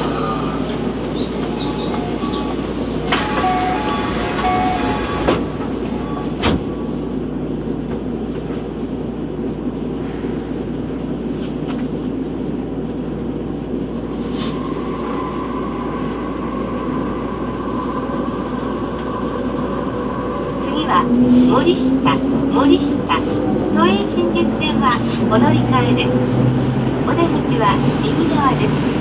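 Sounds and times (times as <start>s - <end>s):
subway car rumble: 0.0s - 29.0s.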